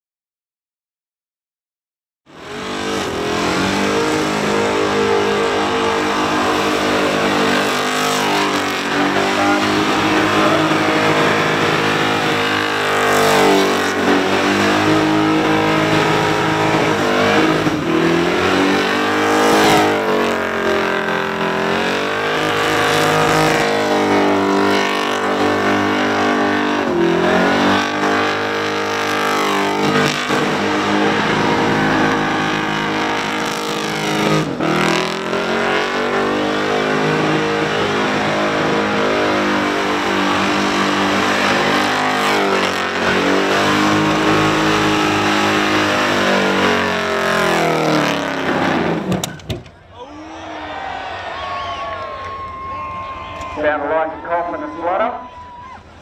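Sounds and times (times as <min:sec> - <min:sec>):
car engine revving high: 0:02.3 - 0:49.3.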